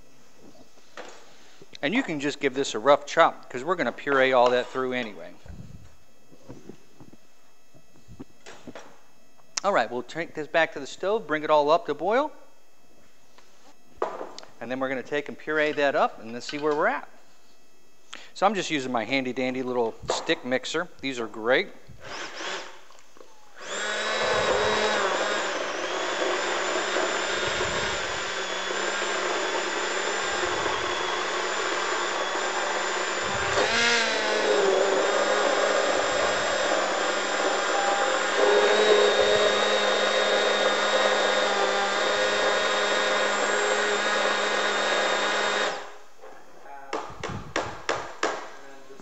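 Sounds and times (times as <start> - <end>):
immersion blender motor whine: 22.0 - 22.9, 23.5 - 46.0.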